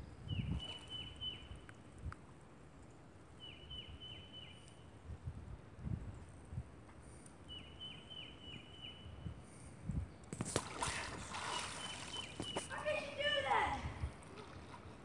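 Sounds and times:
bird chirping: 3.4 - 4.8, 7.5 - 9.1
water splashing: 10.4 - 15.0.

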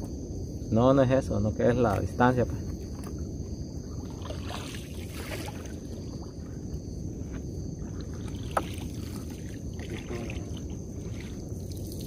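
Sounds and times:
steady low rumble: 0.0 - 12.0
wet net rustling against hull: 2.8 - 12.0.

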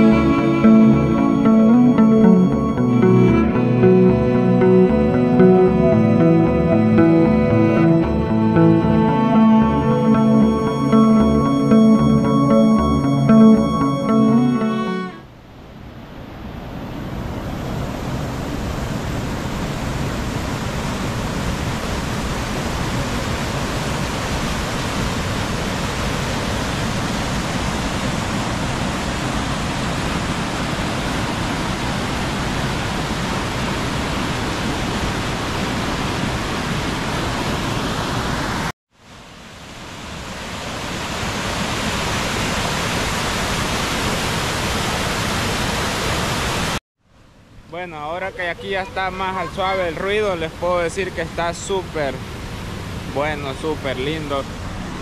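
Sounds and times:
waterfall rushing: 40.3 - 46.8, 48.0 - 54.8.

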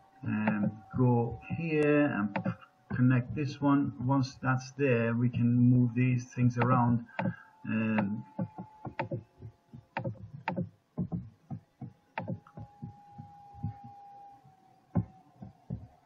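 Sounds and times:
faint steady hum: 0.0 - 16.0
computer mouse clicking: 6.6 - 11.2, 11.8 - 14.0.

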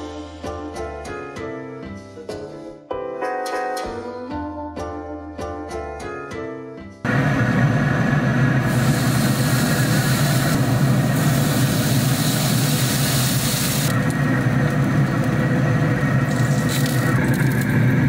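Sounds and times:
piano music: 0.0 - 7.1
pellet grill humming: 7.1 - 18.0
steaks sizzling on grill: 8.7 - 13.9.

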